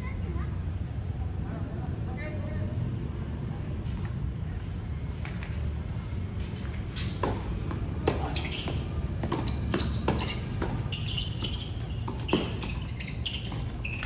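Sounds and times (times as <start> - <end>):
tennis ball bouncing: 7.1 - 14.0
tennis rackets hitting ball: 7.1 - 14.0.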